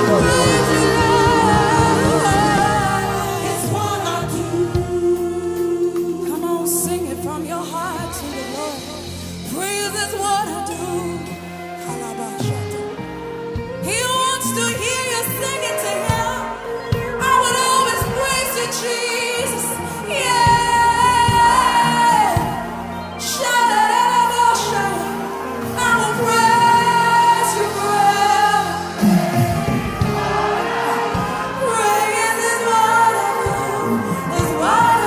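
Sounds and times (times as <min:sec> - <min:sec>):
choir singing: 0:00.0 - 0:07.3, 0:15.2 - 0:35.0
band with keyboard: 0:00.0 - 0:35.0.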